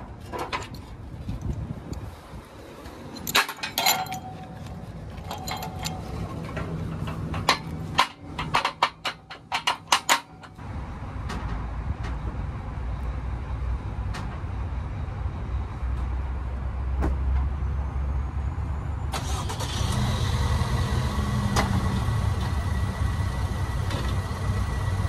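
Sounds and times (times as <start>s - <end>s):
low steady rumble: 0.0s - 18.5s
metal hooks clanking on steel ramps: 3.0s - 10.6s.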